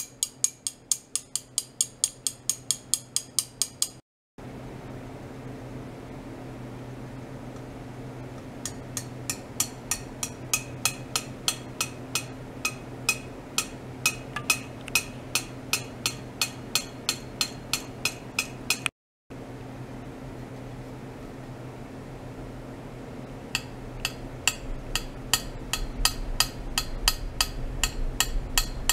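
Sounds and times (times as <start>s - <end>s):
metal tube tapping metal rods: 0.0s - 4.0s, 8.4s - 18.9s, 23.6s - 28.9s
low electrical hum: 4.4s - 28.9s.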